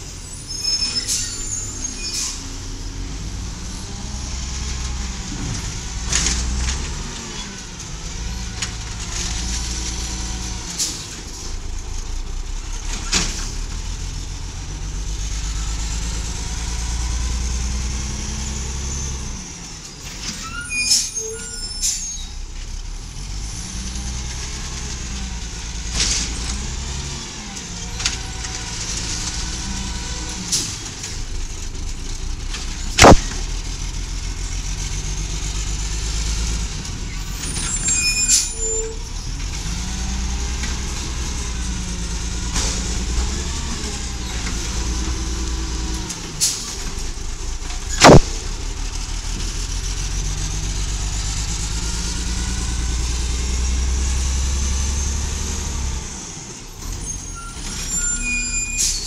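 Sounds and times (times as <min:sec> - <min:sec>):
truck engine rumble: 0:00.0 - 0:20.5, 0:21.3 - 0:58.2
loud sharp bang: 0:33.0 - 0:33.3, 0:48.0 - 0:48.3.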